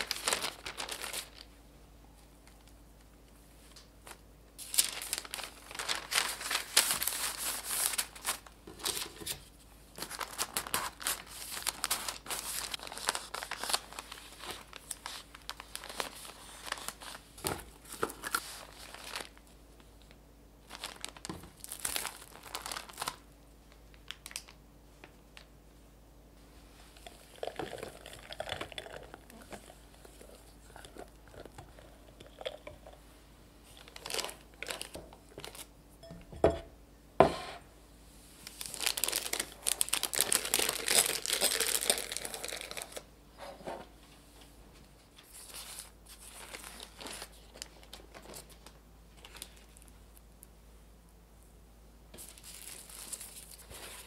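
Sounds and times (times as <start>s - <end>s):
parchment paper crinkling: 0.0s - 1.6s, 2.2s - 25.6s, 33.6s - 35.7s, 38.4s - 43.0s, 45.1s - 50.0s, 52.2s - 54.0s.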